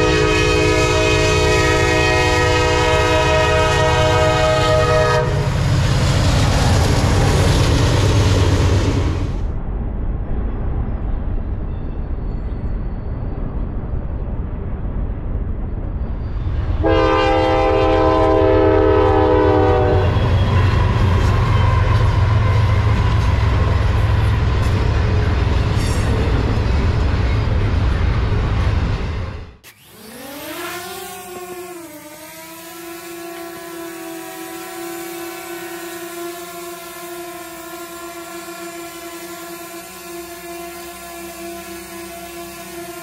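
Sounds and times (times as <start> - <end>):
train horn blast: 0.0 - 6.1, 16.8 - 25.3, 30.5 - 43.0
diesel locomotives rumbling: 0.0 - 43.0.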